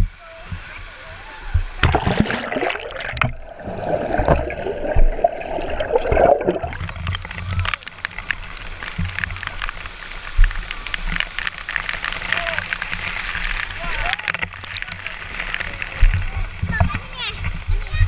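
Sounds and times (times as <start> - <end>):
pool water splashing: 0.0 - 18.0
muffled underwater bubbling: 1.6 - 8.0.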